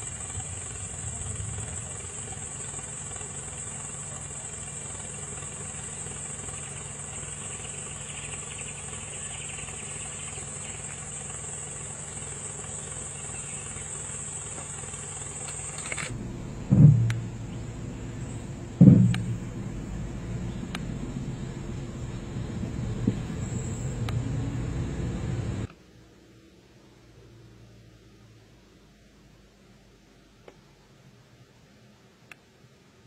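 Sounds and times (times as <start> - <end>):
insects buzzing: 0.0 - 25.7
vehicle engine idling: 0.0 - 25.7
short loud low burst: 16.1 - 24.3.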